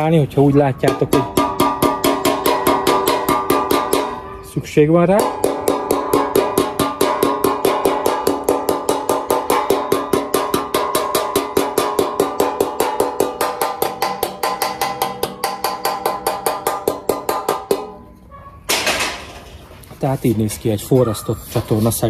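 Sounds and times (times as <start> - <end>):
hammer tapping ringing metal: 0.8 - 4.4, 5.1 - 18.1.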